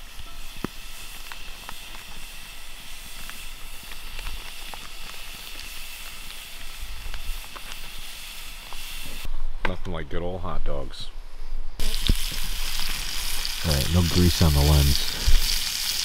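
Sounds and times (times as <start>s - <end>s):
hot dogs sizzling: 0.0s - 9.3s, 11.8s - 16.0s.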